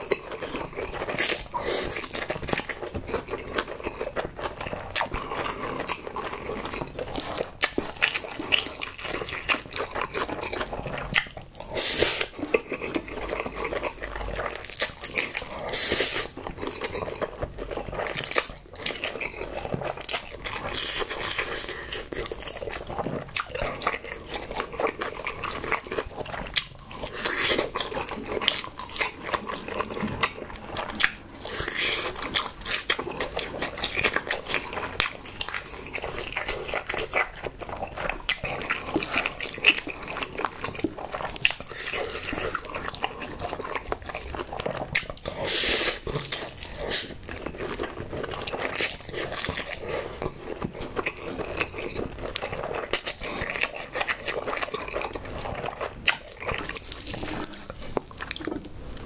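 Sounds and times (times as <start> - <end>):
wet chewing and smacking: 0.0 - 59.0
slurping noodles: 11.6 - 12.8, 15.5 - 16.4, 44.5 - 47.3, 56.4 - 58.7.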